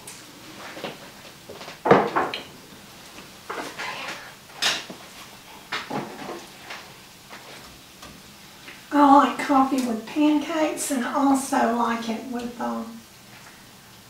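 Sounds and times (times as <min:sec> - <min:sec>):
kitchen knocks and clatters: 0:01.6 - 0:02.6, 0:03.5 - 0:05.0, 0:05.6 - 0:08.2.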